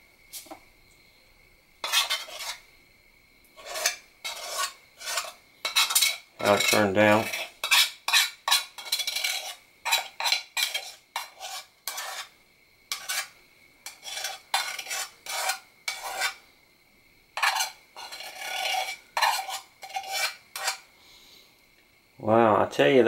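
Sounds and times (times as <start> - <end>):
spoon scraping metal dish: 1.8 - 2.6, 3.6 - 16.4, 17.4 - 20.9.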